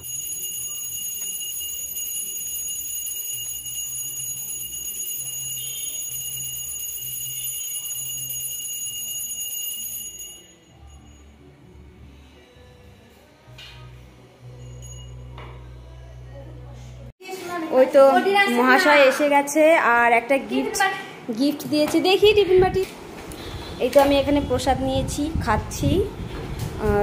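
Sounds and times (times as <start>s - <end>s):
hand bell ringing: 0.0s - 11.4s, 14.5s - 15.7s.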